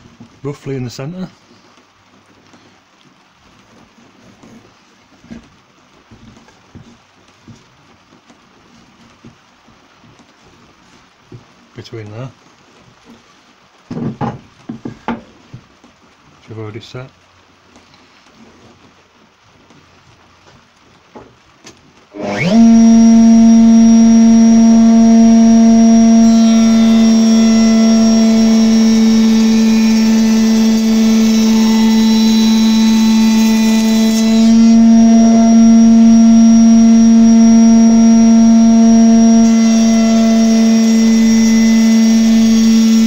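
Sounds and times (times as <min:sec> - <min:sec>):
router high-pitched whine: 0:22.1 - 0:43.0
cutter hissing into wood: 0:22.2 - 0:43.0.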